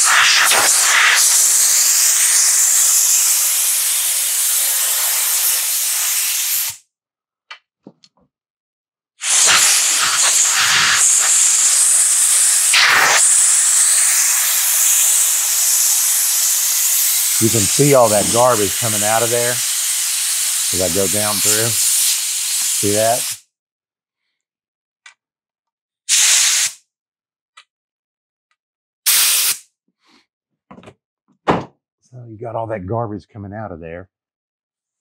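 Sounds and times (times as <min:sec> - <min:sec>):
compressed air hissing from blow gun: 0:00.0 - 0:06.8, 0:09.2 - 0:23.4, 0:26.1 - 0:26.8, 0:29.1 - 0:29.6.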